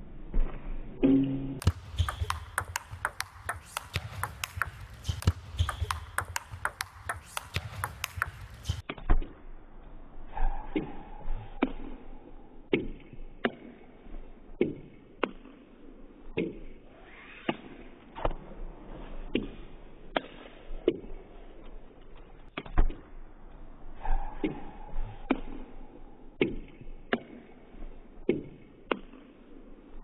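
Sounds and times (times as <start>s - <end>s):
table tennis ball clicks: 1.6s - 8.8s.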